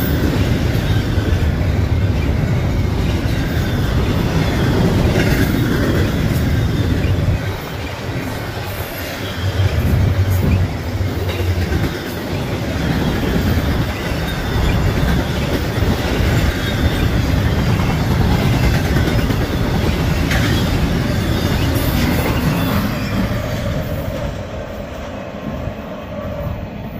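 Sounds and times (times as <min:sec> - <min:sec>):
freight train wheels rumbling: 0:00.0 - 0:26.9.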